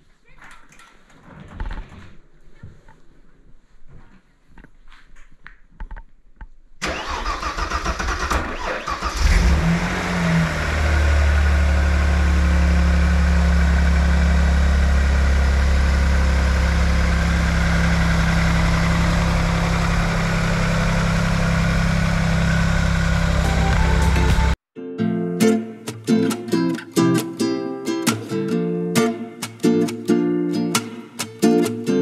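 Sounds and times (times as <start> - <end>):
starter motor cranking: 6.8 - 9.7
car engine revving and idling: 8.9 - 24.6.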